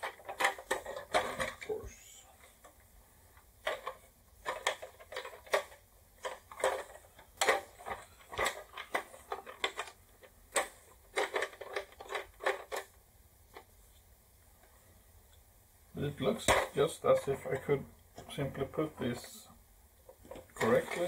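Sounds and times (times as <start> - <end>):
plastic toy parts clicking: 0.0 - 1.8, 3.6 - 13.7, 20.1 - 21.0.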